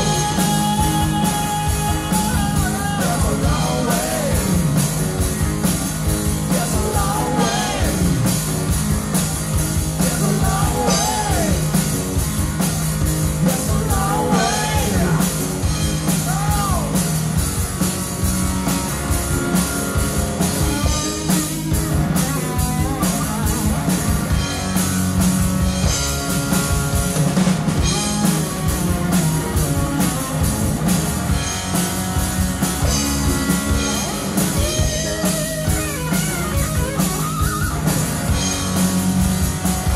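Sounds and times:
man singing lead vocal: 0.0 - 4.7, 6.5 - 8.3, 10.0 - 11.8, 13.4 - 15.5, 16.1 - 17.0
live rock band playing: 0.0 - 39.9.

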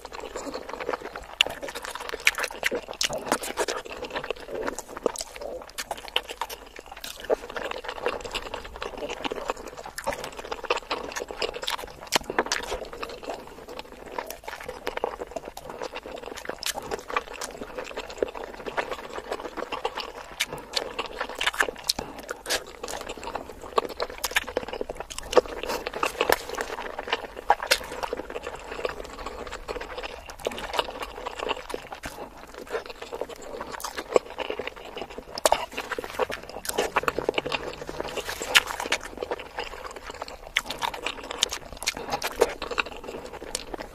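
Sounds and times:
wet chewing mouth sounds: 0.0 - 43.9.

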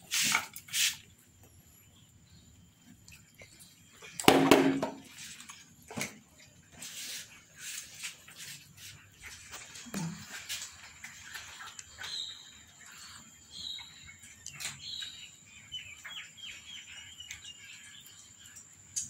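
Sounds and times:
cats chewing and lip-smacking: 2.8 - 4.2, 5.1 - 19.0.

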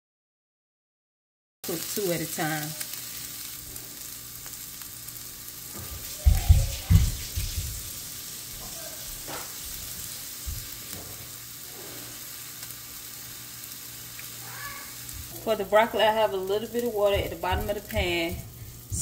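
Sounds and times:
fish sizzling in oil: 1.6 - 19.0
low thumps: 17.0 - 19.0.

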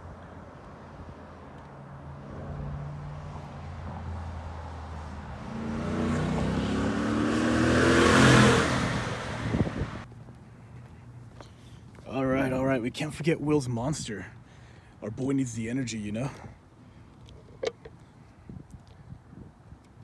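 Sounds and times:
truck engine accelerating past: 3.9 - 10.0.

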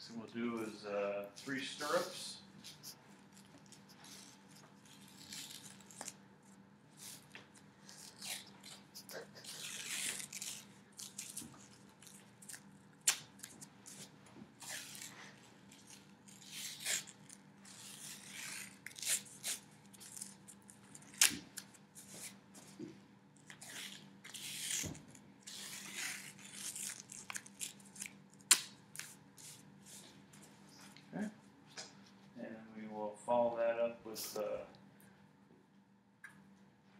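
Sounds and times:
tape pulled off roll rasping: 2.7 - 6.2
tape tearing snaps: 9.4 - 15.1, 20.9 - 21.8, 23.4 - 29.2.

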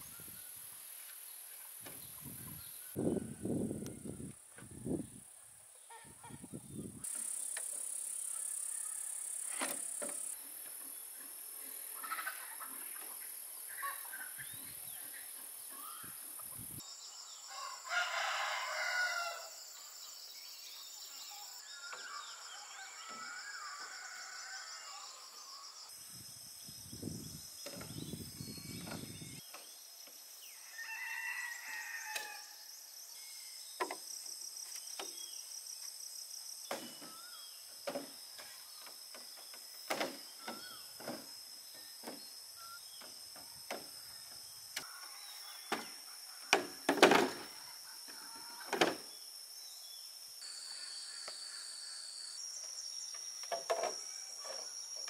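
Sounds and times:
rooster crowing: 17.5 - 19.6, 22.6 - 25.2, 30.5 - 32.6
high-pitched background whine: 31.6 - 55.0.

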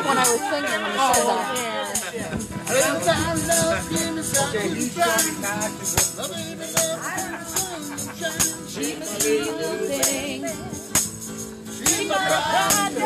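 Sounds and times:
acoustic guitar strumming: 0.0 - 13.0
person singing: 6.2 - 10.9.

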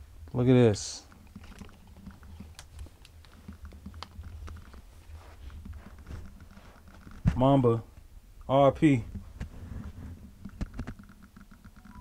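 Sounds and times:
steady low hum: 0.0 - 12.0
light clicks and taps: 1.1 - 4.9.

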